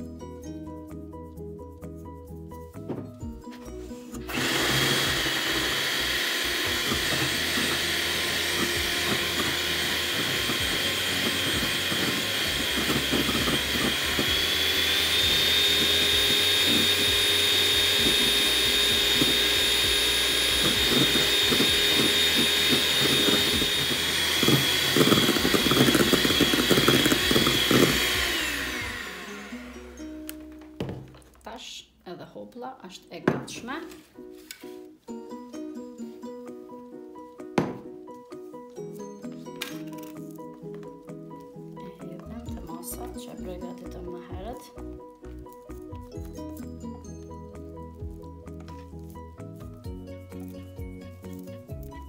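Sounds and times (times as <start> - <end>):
electric hand mixer whine: 3.8 - 31.0.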